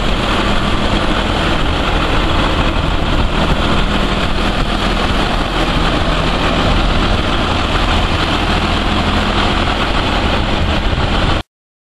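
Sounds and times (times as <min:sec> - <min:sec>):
tractor diesel engine idling: 0:00.0 - 0:11.4.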